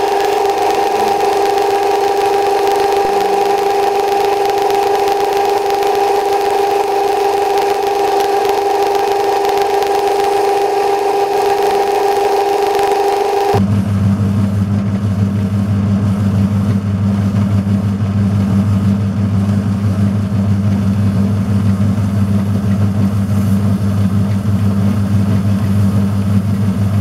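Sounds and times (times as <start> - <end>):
metal lathe motor whine: 0.0 - 13.6.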